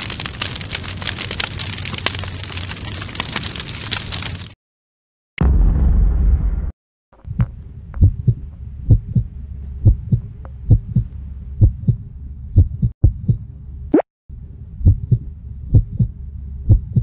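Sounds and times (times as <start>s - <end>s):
logo intro rumble: 5.4s - 6.7s
faint steady hum: 7.2s - 17.0s
muffled camera thumps: 9.9s - 12.0s.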